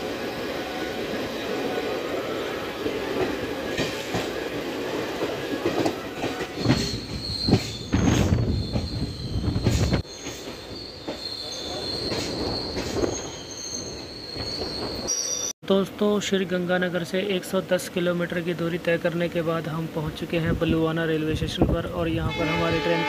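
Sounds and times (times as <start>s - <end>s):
train rolling on rails: 0.0s - 23.0s
train wheel squeal: 6.2s - 15.5s.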